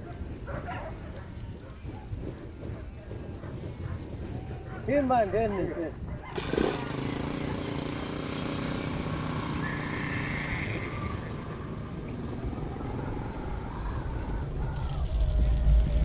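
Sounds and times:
small motorcycle engine running: 6.2s - 16.0s.

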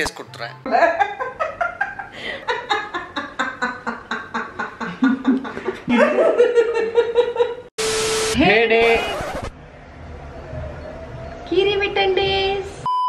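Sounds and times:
man laughing hard: 0.7s - 7.7s.

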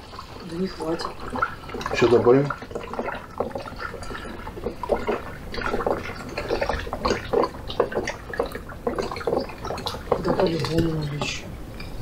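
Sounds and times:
liquid pouring and splashing: 0.0s - 11.4s.

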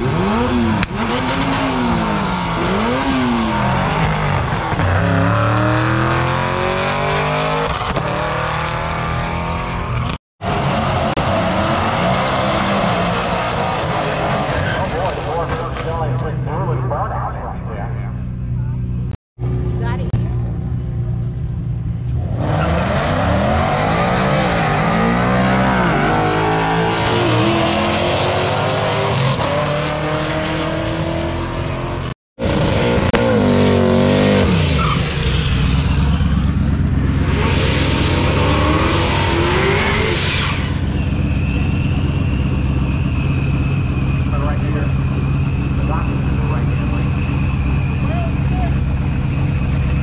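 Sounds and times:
drag cars accelerating: 0.0s - 20.9s, 22.1s - 50.0s
car engine revving: 0.0s - 50.0s
tyre squeal: 37.2s - 50.0s.

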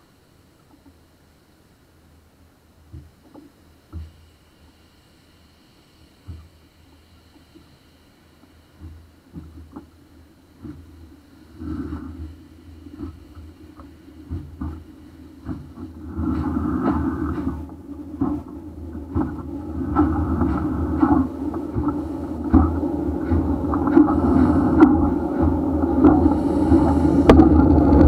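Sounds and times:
steam locomotive rumbling: 6.3s - 28.0s.

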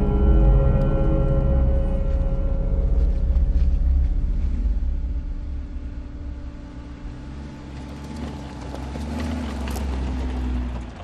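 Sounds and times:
engine running at low speed: 0.0s - 11.0s
tyres crackling over stones: 7.5s - 11.0s.

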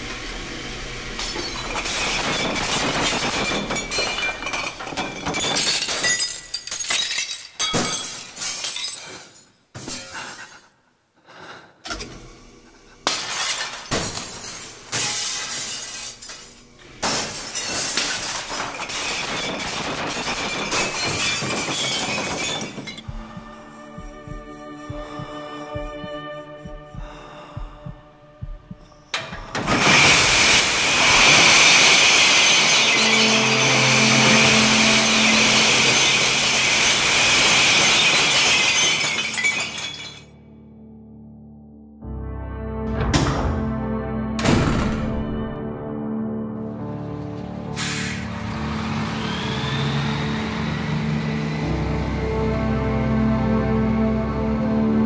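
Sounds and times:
low droning music: 0.0s - 5.1s, 12.0s - 18.7s, 22.8s - 30.3s, 32.2s - 37.7s, 40.3s - 55.0s
low hum: 0.0s - 5.1s, 22.8s - 31.2s
glass bottles shattering: 1.2s - 10.5s, 13.1s - 23.1s, 29.6s - 40.4s
soft low thuds: 23.0s - 29.1s.

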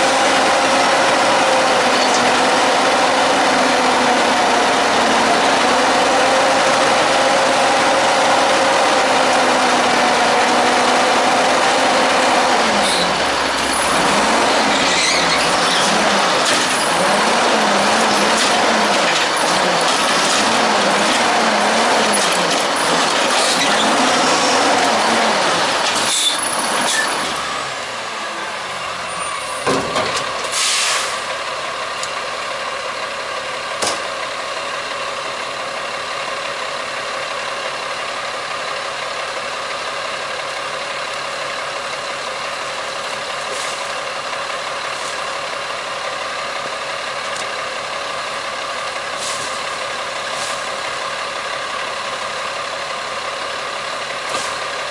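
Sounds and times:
garbage truck diesel revving: 0.0s - 54.9s
garbage truck diesel idling: 0.4s - 19.9s, 31.2s - 54.9s
air brake hiss: 30.5s - 31.3s, 49.2s - 49.6s.

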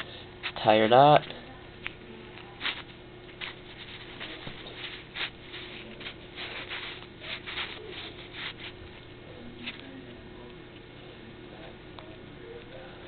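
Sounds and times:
faint steady hum: 0.0s - 13.0s
fingers rustling fishing line: 2.6s - 9.0s.

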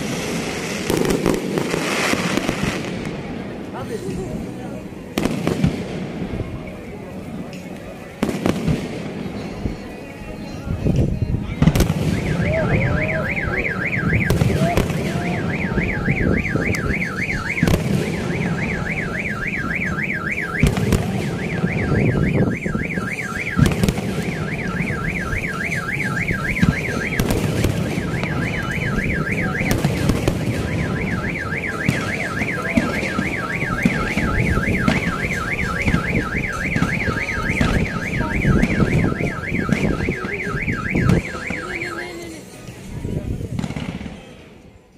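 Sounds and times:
firework bangs and crackle: 0.0s - 44.6s
warbling electronic alarm tone: 12.1s - 42.2s.

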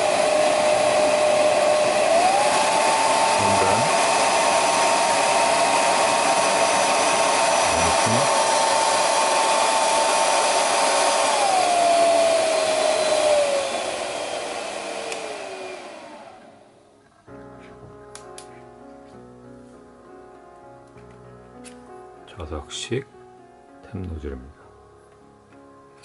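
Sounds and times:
hair dryer running: 0.0s - 16.8s.

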